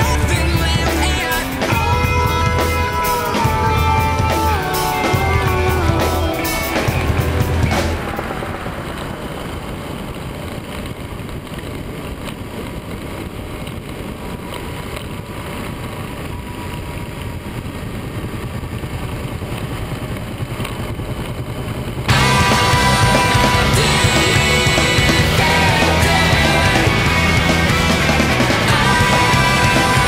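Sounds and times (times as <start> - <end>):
rock music: 0.0 - 9.4, 22.1 - 30.0
motorcycle engine running: 0.0 - 30.0
wind noise: 0.0 - 30.0.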